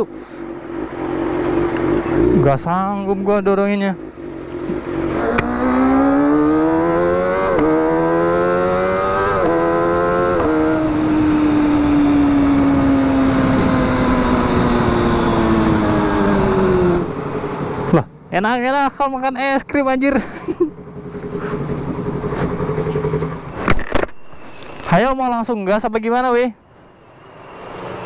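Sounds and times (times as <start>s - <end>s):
motorcycle engine revving: 0.7s - 3.2s, 4.0s - 17.9s, 20.6s - 23.7s.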